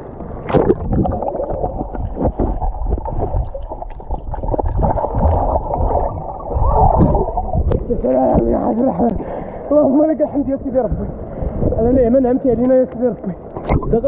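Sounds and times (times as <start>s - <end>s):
underwater bubbles crackling: 0.0s - 9.5s, 13.4s - 14.0s
water splash: 0.2s - 8.6s, 13.6s - 14.0s.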